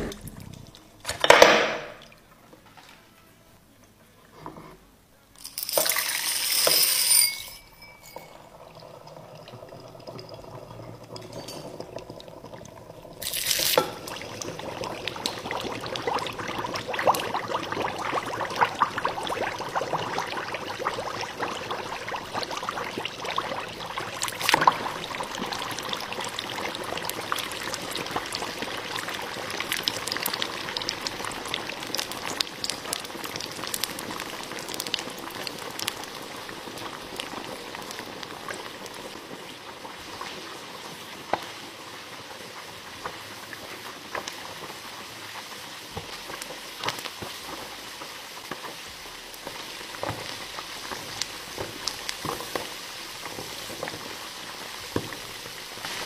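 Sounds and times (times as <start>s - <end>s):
oil bubbling and sizzling: 5.8s - 56.0s
loud burst of sizzling: 13.2s - 13.8s.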